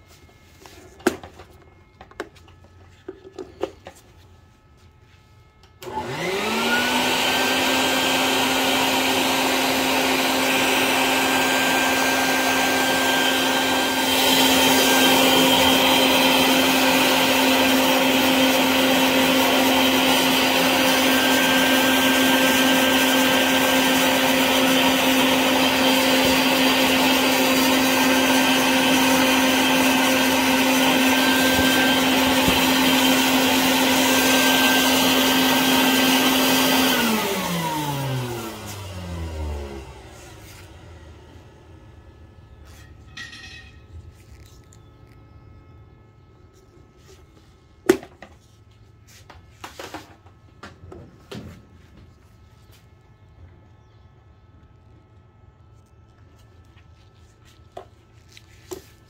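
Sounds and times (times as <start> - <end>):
air compressor running: 5.4 - 43.4.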